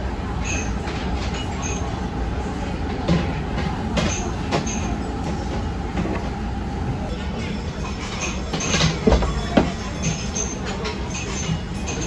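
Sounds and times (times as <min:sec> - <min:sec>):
restaurant low rumble: 0:00.0 - 0:12.0
tableware clicks: 0:07.8 - 0:12.0.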